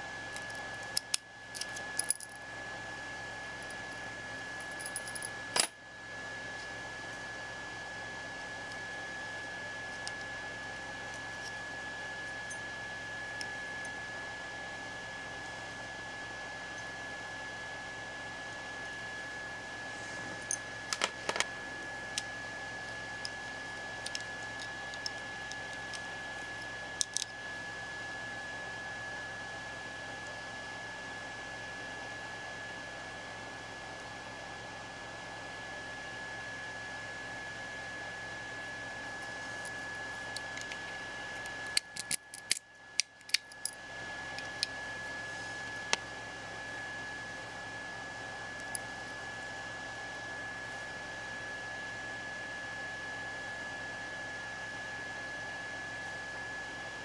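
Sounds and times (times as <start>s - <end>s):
plastic and metal parts clicking: 41.8s - 43.5s.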